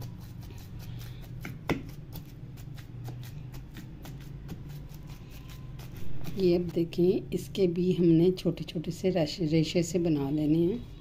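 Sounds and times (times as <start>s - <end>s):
wooden masher mashing in a pot: 0.0s - 7.6s.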